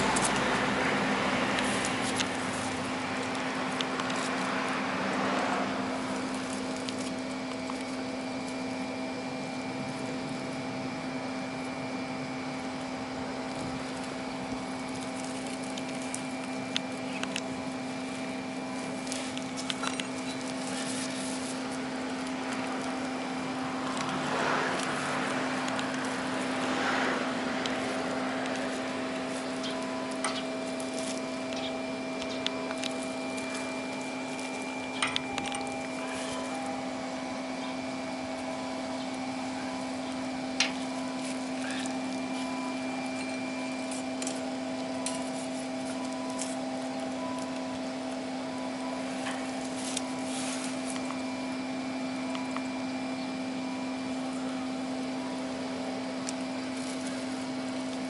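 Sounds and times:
wire clicking and rustling: 0:00.0 - 0:05.3, 0:05.9 - 0:08.8, 0:12.7 - 0:48.3
low mechanical hum: 0:00.0 - 0:58.0.

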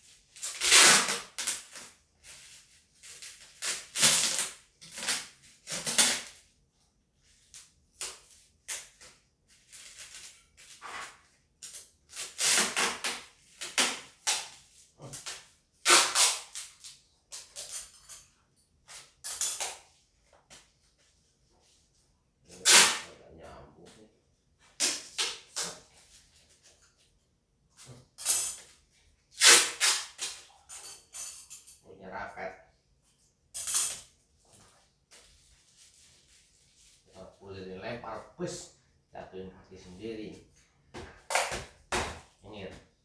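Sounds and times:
packing tape pulled off roll: 0:00.4 - 0:02.0, 0:03.0 - 0:06.4, 0:08.0 - 0:17.8, 0:22.6 - 0:23.1, 0:24.8 - 0:25.8, 0:29.3 - 0:30.5.

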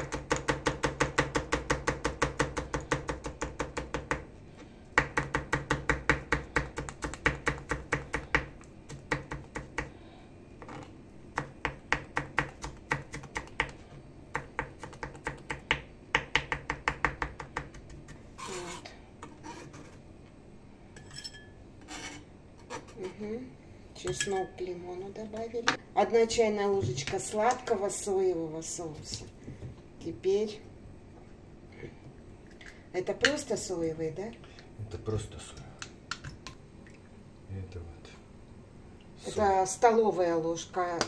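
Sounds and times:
knife chopping on cutting mat: 0:05.0 - 0:09.9, 0:11.4 - 0:18.2
knife scraping: 0:18.3 - 0:20.0, 0:21.0 - 0:23.2.

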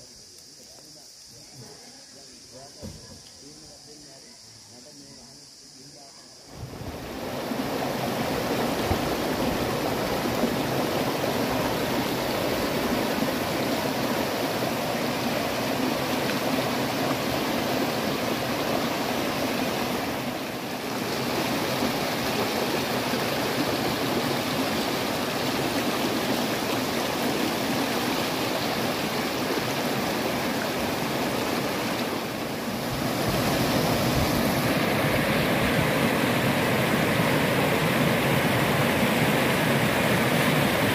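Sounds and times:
stream rushing over boulders: 0:06.5 - 0:40.9.

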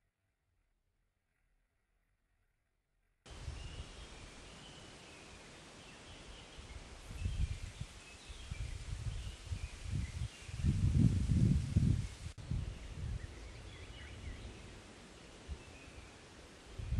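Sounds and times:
wind buffeting microphone: 0:03.3 - 0:04.3, 0:06.5 - 0:16.1, 0:16.7 - 0:16.9
birds chirping faintly: 0:03.3 - 0:10.8, 0:12.0 - 0:16.9
steady hiss: 0:03.3 - 0:16.9.

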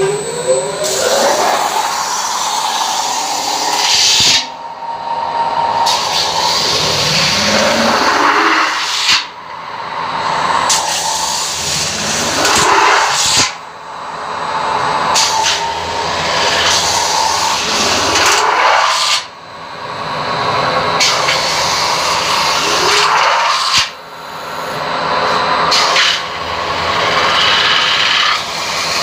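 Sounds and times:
machine rising tone: 0:00.0 - 0:29.0.

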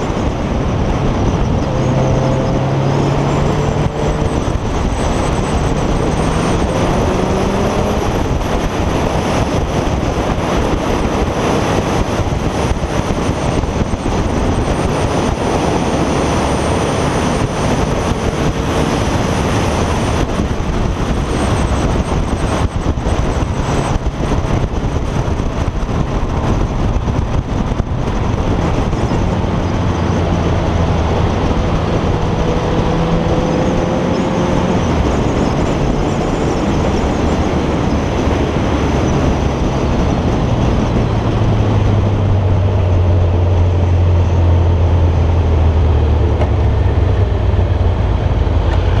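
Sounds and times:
motorcycle engine hum: 0:00.0 - 0:49.0
wind buffeting microphone: 0:00.0 - 0:49.0.

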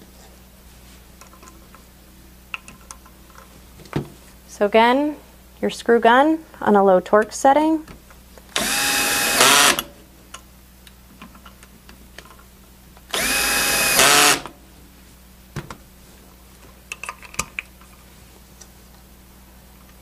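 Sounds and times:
screw gun motor whine: 0:08.6 - 0:09.9, 0:13.1 - 0:14.5.

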